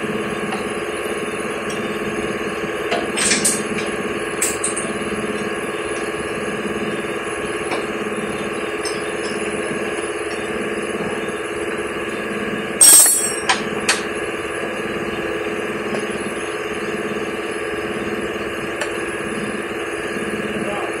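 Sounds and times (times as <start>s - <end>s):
metallic clank with ringing: 8.8s - 9.5s, 12.8s - 14.0s.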